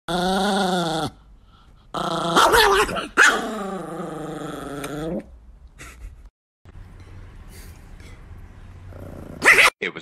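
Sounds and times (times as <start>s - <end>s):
small dog growling: 1.9s - 5.3s, 8.9s - 9.7s
dog barking sharply: 9.4s - 9.7s.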